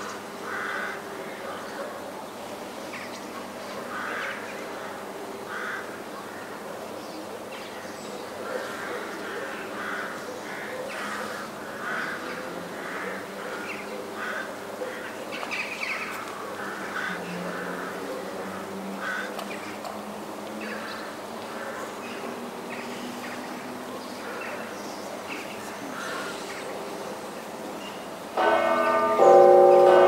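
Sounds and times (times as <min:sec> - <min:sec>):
hum of large bells: 0:28.4 - 0:30.0.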